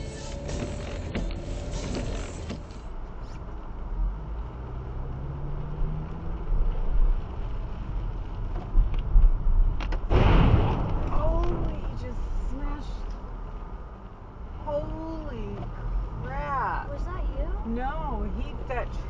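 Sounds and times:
car engine: 0.0 - 19.0
road rumble: 0.0 - 19.0.

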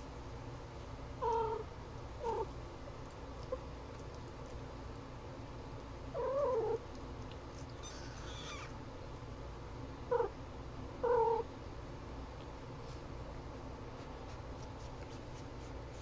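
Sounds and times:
steady low hum: 0.0 - 16.0
kittens mewing: 7.7 - 8.8.

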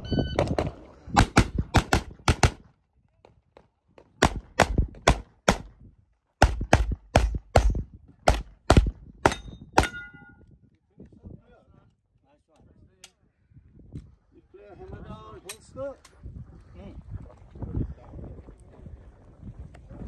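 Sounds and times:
rapid gunshots: 1.2 - 2.6
steel target ringing: 9.3 - 10.4.

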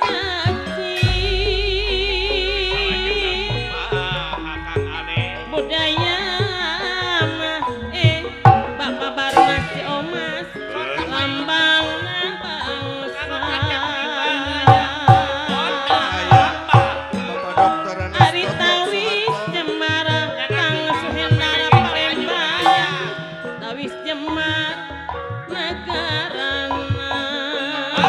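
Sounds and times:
hand drum strokes: 0.0 - 11.6
woman singing with vibrato: 0.0 - 17.4, 18.2 - 28.0
struck metallophones: 0.0 - 28.0.

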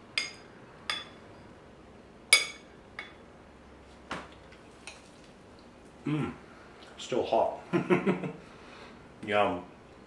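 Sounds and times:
metal spoon clinking on ceramic bowl: 0.2 - 1.2, 2.3 - 3.2.

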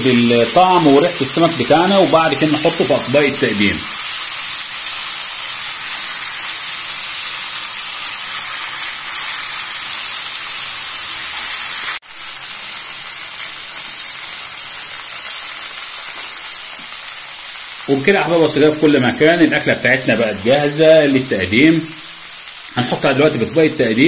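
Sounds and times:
food sizzling in a frying pan: 0.0 - 24.0.

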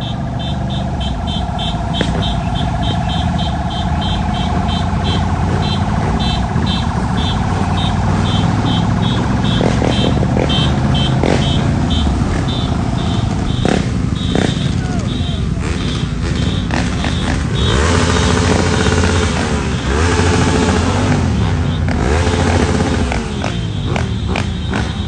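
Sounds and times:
rapid high-pitched beeping: 0.0 - 19.2
motorbike engines running: 0.0 - 25.0.

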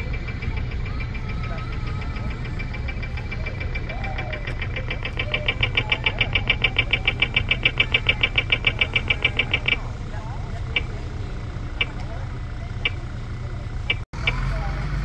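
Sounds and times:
low rumble of traffic: 0.0 - 15.0
crossing signal rapid high beeps: 0.5 - 10.0.

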